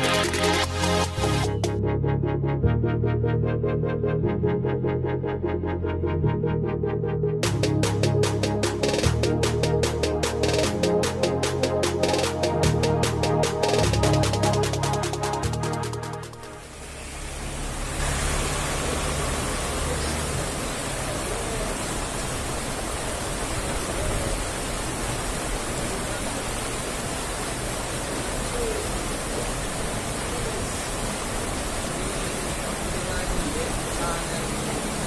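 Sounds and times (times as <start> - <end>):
water rushing through a culvert: 16.4 - 35.0.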